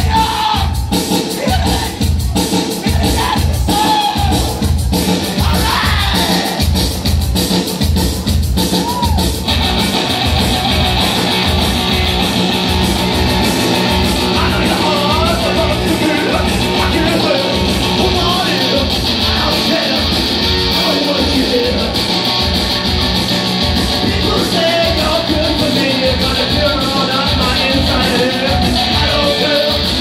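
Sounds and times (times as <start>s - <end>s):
man singing into microphone: 0.0s - 2.0s, 2.8s - 4.6s, 5.4s - 6.6s, 14.3s - 22.0s, 24.0s - 30.0s
distorted electric guitar: 0.0s - 30.0s
live rock band playing: 0.0s - 30.0s.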